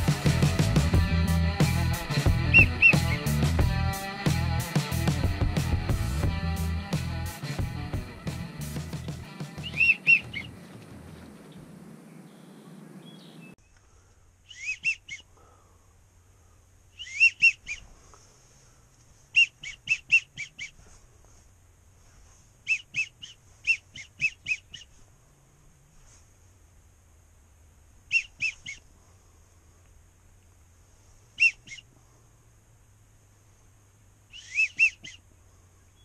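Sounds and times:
guitar music: 0.0s - 10.4s
duck whistling: 1.7s - 3.8s, 9.5s - 10.6s, 14.4s - 15.3s, 17.0s - 17.9s, 19.3s - 20.8s, 22.6s - 24.9s, 28.1s - 28.8s, 31.4s - 31.9s, 34.3s - 35.2s.

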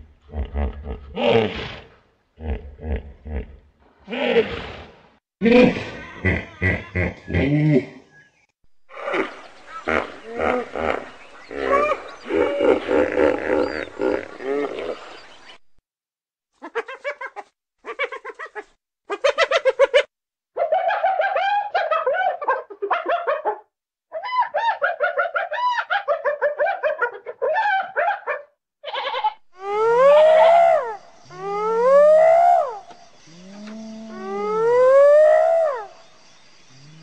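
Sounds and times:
hippopotamus grunting and honking: 8.9s - 15.0s
hyena calling: 28.9s - 36.0s.

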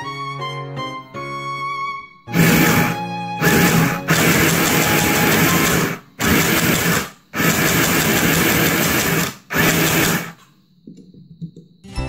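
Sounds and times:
sewing machine stitching: 2.3s - 10.4s.

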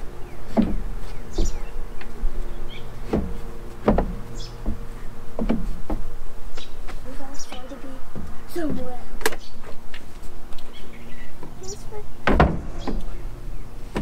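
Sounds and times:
buzzing hum: 0.0s - 14.0s
sharp knocks and thumps: 0.5s - 2.1s, 3.0s - 9.4s, 12.2s - 13.2s.

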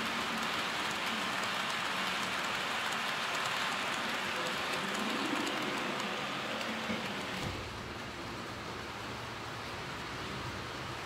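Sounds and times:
faint rapid ticks: 0.0s - 7.3s
model train wheels rattling: 0.0s - 7.8s.

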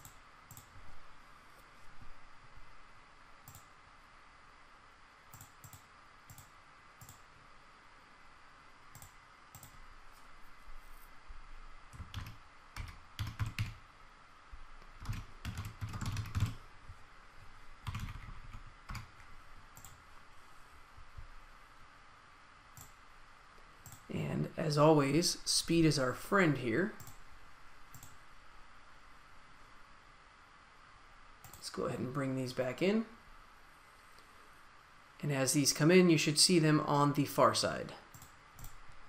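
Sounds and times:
keyboard typing: 0.0s - 0.7s, 5.3s - 7.2s, 8.9s - 9.8s, 11.9s - 13.8s, 15.0s - 16.6s, 17.8s - 20.0s, 23.8s - 24.1s, 27.9s - 28.2s
mouse clicks: 0.0s - 0.7s, 3.4s - 3.7s, 5.3s - 7.2s, 8.9s - 9.8s, 22.7s - 23.0s
faint steady hum: 0.0s - 39.0s.

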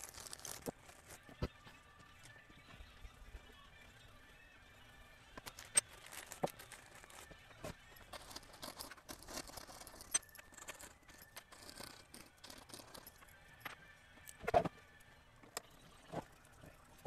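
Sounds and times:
metallic clicks of small screws: 8.1s - 13.2s.

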